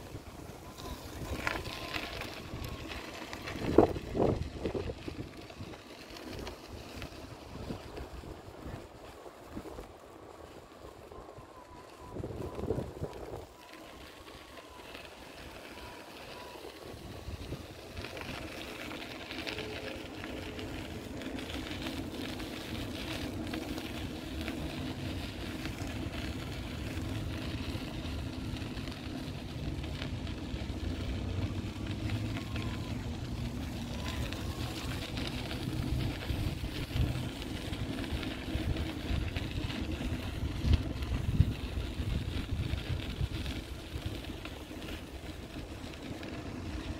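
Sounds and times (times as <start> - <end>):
traffic rumble: 0.0 - 46.9
vehicle engine hum: 0.0 - 46.9.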